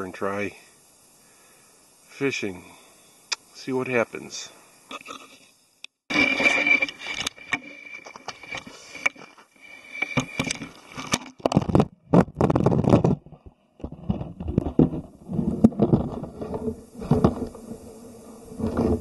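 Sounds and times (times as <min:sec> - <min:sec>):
scraping and knocking on ice: 0:06.1 - 0:17.5.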